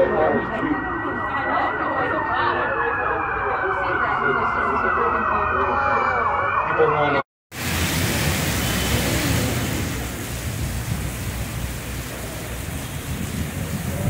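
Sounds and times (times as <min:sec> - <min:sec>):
heavy rain hissing on street: 0:07.5 - 0:14.0
traffic on wet road: 0:07.6 - 0:14.0.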